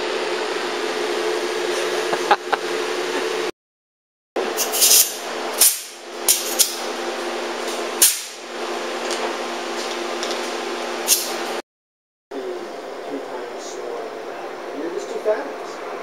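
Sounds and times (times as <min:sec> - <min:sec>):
air tool hisses and clicks: 0:04.6 - 0:06.8.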